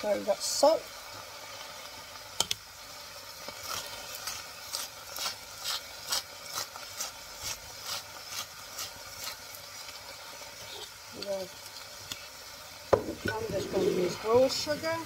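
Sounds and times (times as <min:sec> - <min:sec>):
salt grinder grinding: 0:03.3 - 0:14.6.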